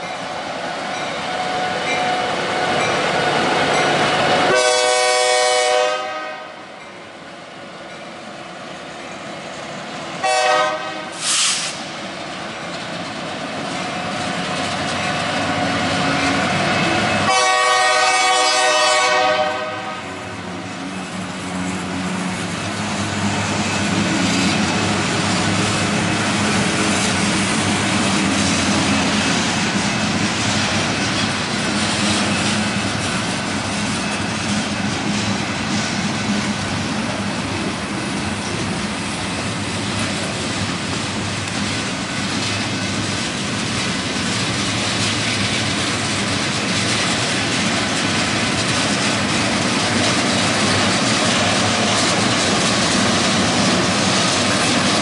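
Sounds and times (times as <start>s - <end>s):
locomotive air horn blasts: 4.4s - 6.6s, 10.2s - 11.8s, 17.2s - 20.2s
wheels clacking on rail joints: 11.8s - 19.8s, 20.5s - 55.0s.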